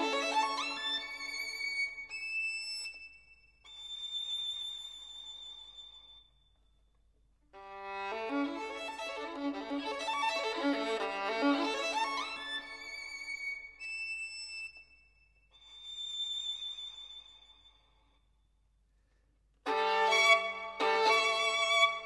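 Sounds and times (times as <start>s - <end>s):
violin music with vibrato: 0.0s - 2.1s, 7.6s - 13.8s, 19.7s - 22.0s.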